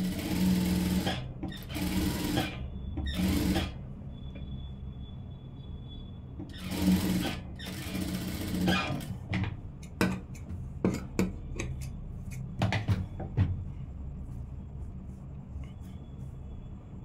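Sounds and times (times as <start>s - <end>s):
sewing machine stitching: 0.0s - 3.8s, 6.4s - 9.3s
steady low hum: 9.5s - 17.0s.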